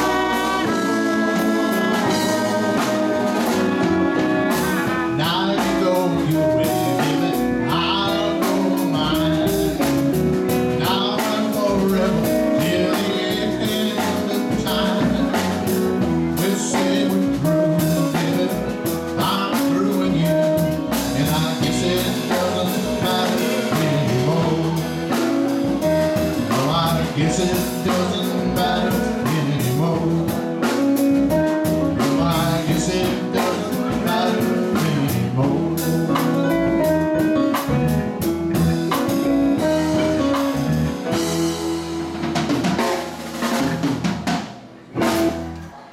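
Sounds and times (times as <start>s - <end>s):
live blues band playing: 0.0s - 45.9s.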